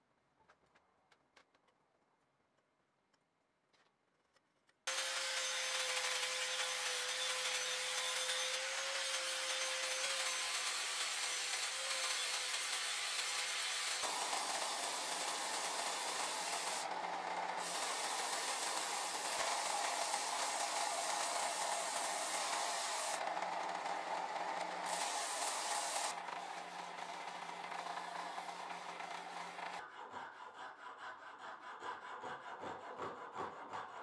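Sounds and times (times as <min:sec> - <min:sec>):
angle grinder whining on wood: 0:04.9 - 0:29.8
belt sander rasping wood: 0:04.9 - 0:29.8.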